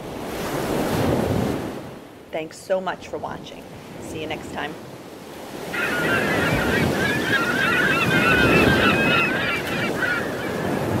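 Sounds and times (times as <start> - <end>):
surf: 4.7 - 11.0
flock of birds calling: 5.6 - 11.0.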